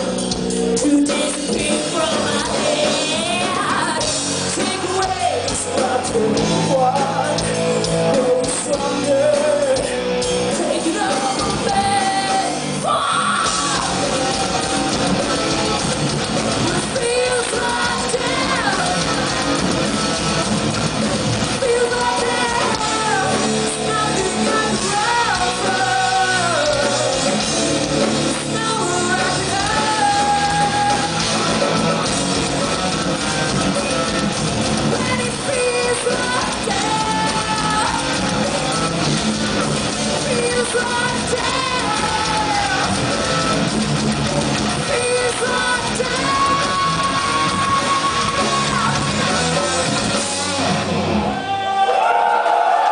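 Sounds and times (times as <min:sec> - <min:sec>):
hard rock band playing: 0:00.0 - 0:51.9
woman singing: 0:00.8 - 0:07.5, 0:08.1 - 0:09.9, 0:10.5 - 0:14.8, 0:16.6 - 0:19.8, 0:21.5 - 0:27.4, 0:28.3 - 0:31.3, 0:34.9 - 0:38.8, 0:40.2 - 0:43.4, 0:44.8 - 0:49.9.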